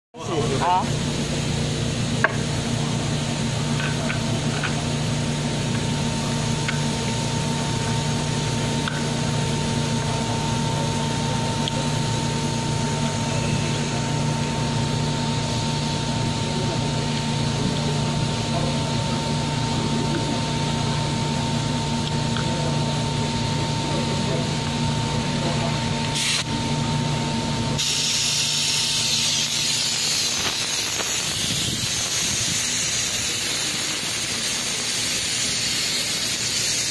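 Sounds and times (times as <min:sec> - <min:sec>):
compressed air hiss: 0:26.2 - 0:26.5, 0:27.8 - 0:36.9.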